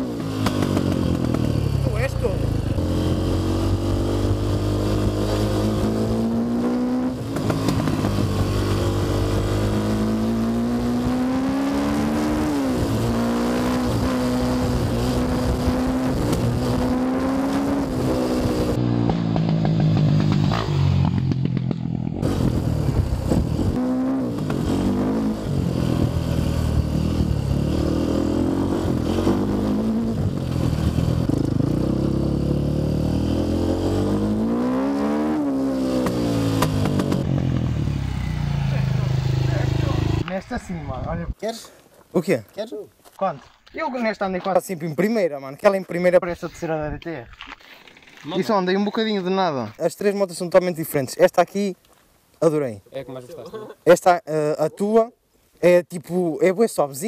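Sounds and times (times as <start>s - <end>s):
dirt bike engine revving: 0.0s - 40.4s.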